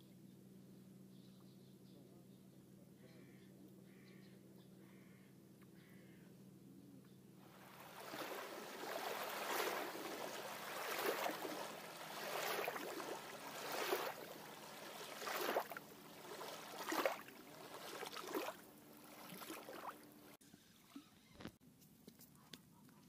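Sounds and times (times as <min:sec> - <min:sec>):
water washing in swishes: 0:07.5 - 0:20.4.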